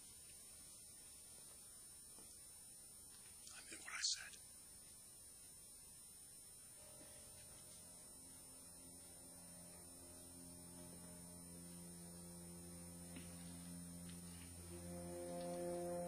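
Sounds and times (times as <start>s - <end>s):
low sustained dramatic notes: 6.6s - 16.0s.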